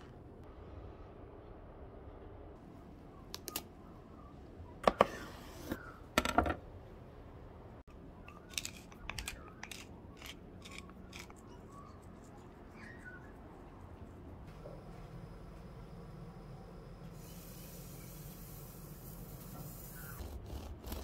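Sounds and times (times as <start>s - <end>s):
pepper mill grinding: 8.2s - 11.4s.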